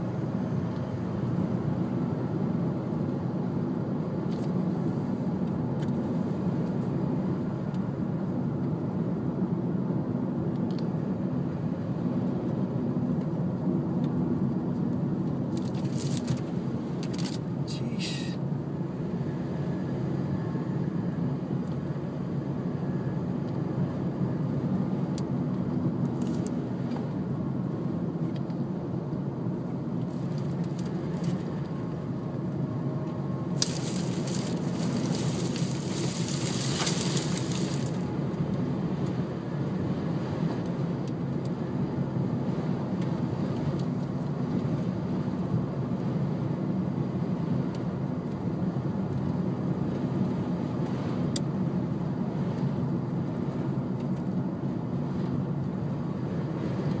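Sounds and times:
car cabin rumble: 32.4 - 38.1.

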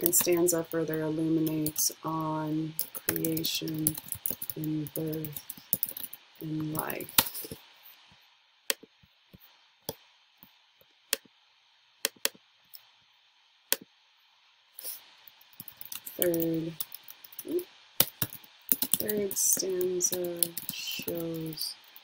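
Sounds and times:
woman's voice murmuring: 17.5 - 17.7.

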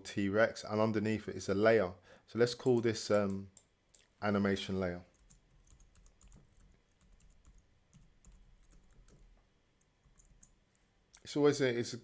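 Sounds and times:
keyboard typing: 5.1 - 10.6.

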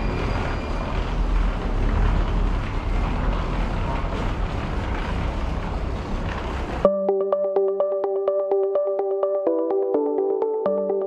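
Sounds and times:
low rumbling background noise: 0.0 - 6.9
wheeled suitcases rolling: 0.0 - 6.9.

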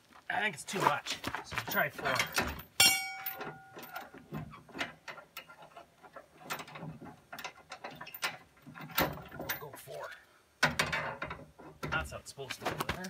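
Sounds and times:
metal chain clicking and clinking: 1.6 - 4.2.

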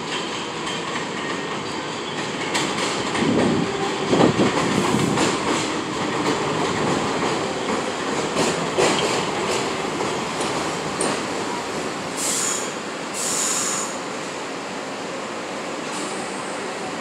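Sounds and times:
subway train rumbling: 0.0 - 17.0.

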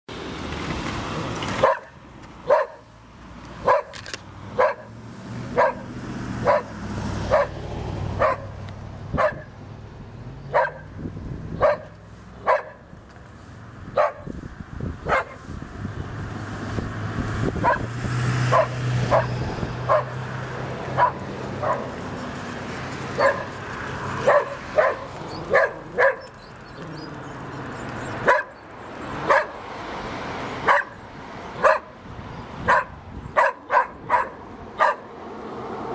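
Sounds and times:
road traffic rumbling: 0.1 - 35.9
vehicle passing: 0.1 - 35.9
dog barking: 1.6 - 2.9, 3.6 - 4.0, 4.6 - 4.9, 5.5 - 7.6, 8.2 - 9.5, 10.5 - 11.0, 11.6 - 12.8, 13.9 - 14.3, 15.0 - 15.4, 17.6 - 17.9, 18.5 - 20.2, 21.0 - 22.0, 23.2 - 23.6, 24.2 - 26.3, 28.2 - 28.6, 29.2 - 29.6, 30.6 - 31.0, 31.6 - 32.0, 32.6 - 35.1.

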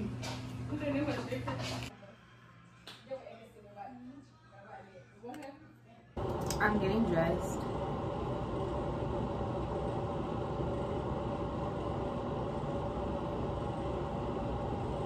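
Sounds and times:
low rumbling hum: 6.2 - 15.0.

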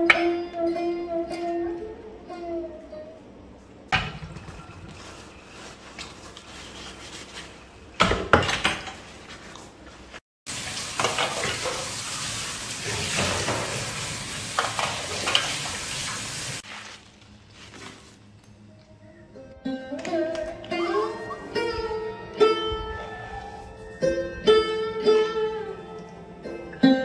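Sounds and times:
dishes and utensils clinking: 11.0 - 11.9.

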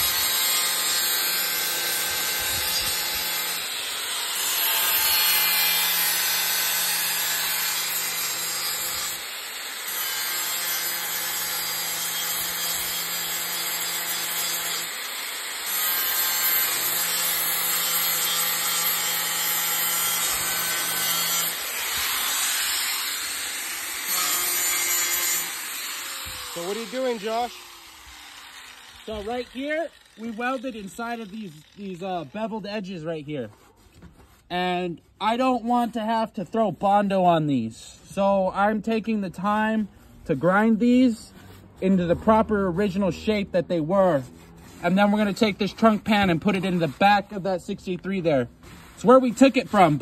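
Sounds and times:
angle grinder grinding steel: 0.0 - 32.7.

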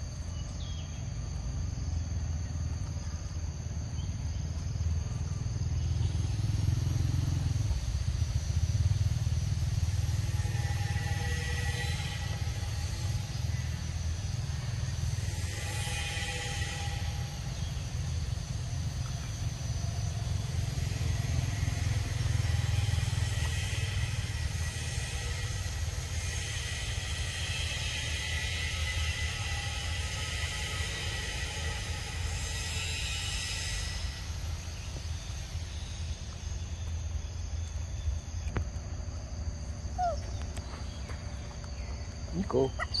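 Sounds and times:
high insect drone: 0.0 - 43.0.

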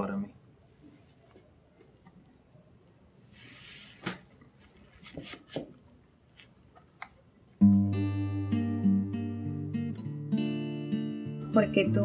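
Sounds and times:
acoustic guitar music: 7.6 - 12.0.

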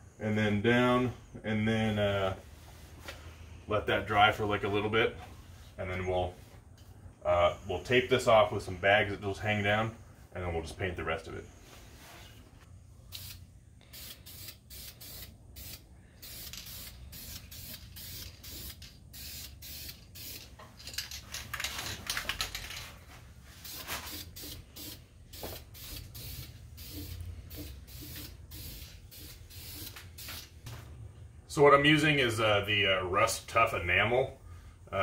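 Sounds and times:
aerosol spray can hissing: 13.1 - 20.4, 23.6 - 30.6.

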